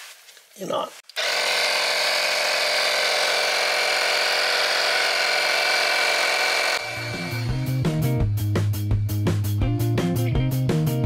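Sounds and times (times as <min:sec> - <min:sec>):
tire inflator compressor buzzing: 0:01.2 - 0:09.2.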